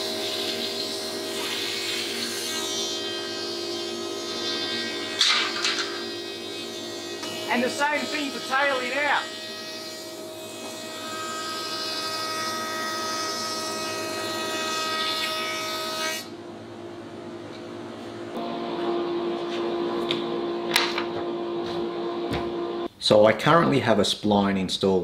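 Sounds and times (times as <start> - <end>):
thicknesser motor whine: 16.3 - 22.9.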